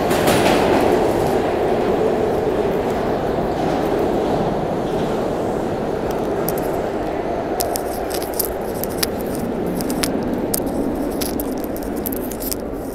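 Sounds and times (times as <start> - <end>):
subway station low rumble: 0.0 - 12.9
sharp clicks and clinks: 7.6 - 12.9.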